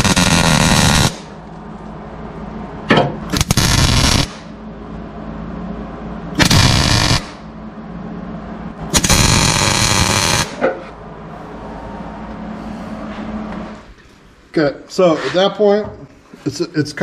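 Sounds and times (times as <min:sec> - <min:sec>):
welder arc crackling: 0:00.0 - 0:01.3, 0:03.3 - 0:04.5, 0:06.4 - 0:07.4, 0:08.9 - 0:10.6.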